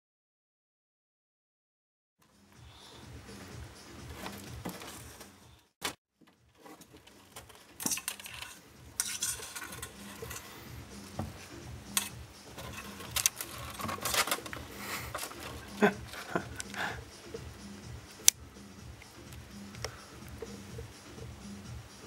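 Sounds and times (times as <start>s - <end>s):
claws scratching on wood: 12.0s - 16.9s.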